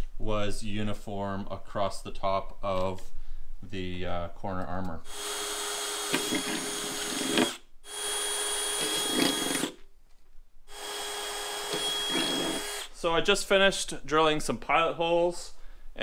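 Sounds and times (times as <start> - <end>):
cordless drill boring sheet metal: 5.1 - 9.8, 10.7 - 13.0.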